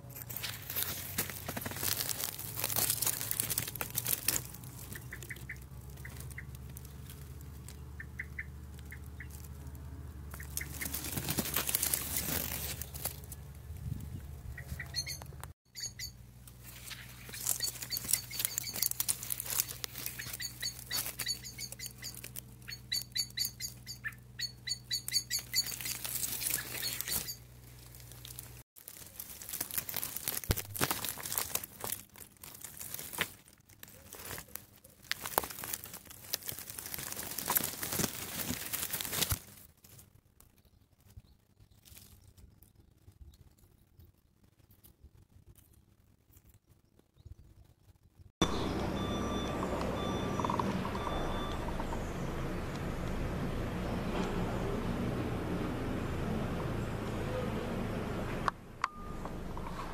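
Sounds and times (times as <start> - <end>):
leaves and twigs rustling: 0.0 - 54.6
small birds chirping: 0.9 - 30.6, 40.4 - 53.0.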